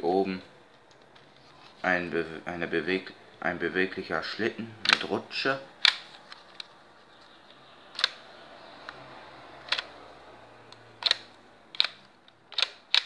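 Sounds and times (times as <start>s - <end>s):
plastic toy pistol clicking: 11.0s - 13.0s.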